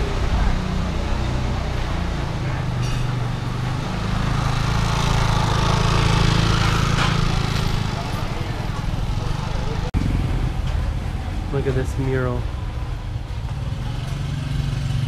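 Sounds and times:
motor scooter engine running: 3.3s - 10.6s.

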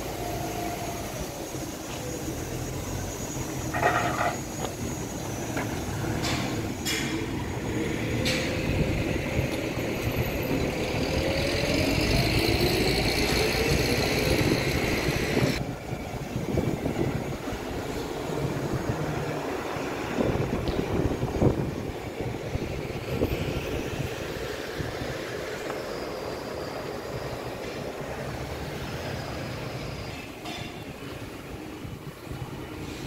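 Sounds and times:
hiss: 0.0s - 15.6s, 17.8s - 33.0s
low traffic rumble: 0.0s - 33.0s
vehicle engine speeding up: 7.5s - 15.6s.

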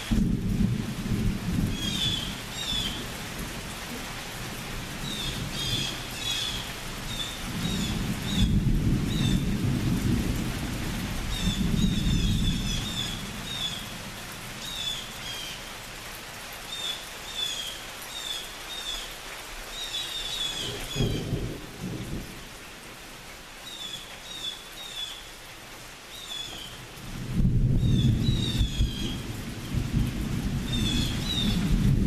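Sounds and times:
thunder rumbling: 0.0s - 3.7s, 7.0s - 14.5s, 20.6s - 22.5s, 27.0s - 32.0s
rain hissing: 0.0s - 32.0s.

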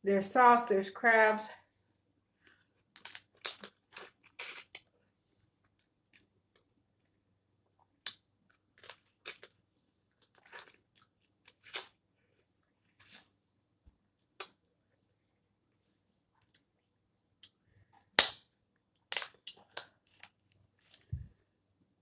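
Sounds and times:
sucking and chewing: 2.4s - 4.9s, 7.8s - 12.0s, 13.0s - 13.4s, 19.1s - 21.1s.

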